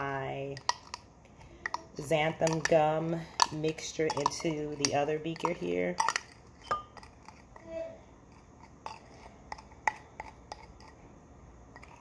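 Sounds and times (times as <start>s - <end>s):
spoon clinking against glass: 5.4s - 7.1s.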